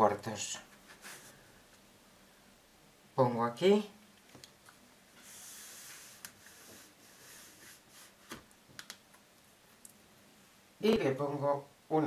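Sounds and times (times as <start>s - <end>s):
ruler rustling over fabric: 5.1s - 8.5s.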